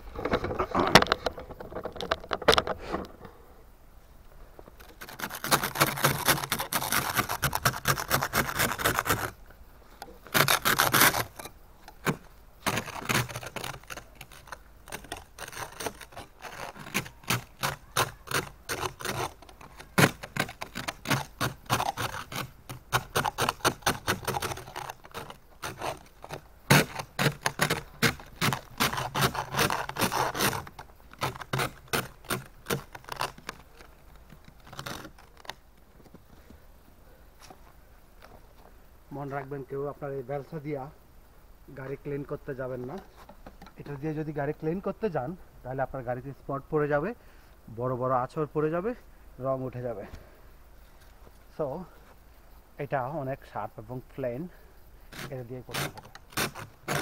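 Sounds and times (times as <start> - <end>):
ice scraper scraping glass: 4.9 - 9.3, 10.3 - 33.6, 55.2 - 57.0.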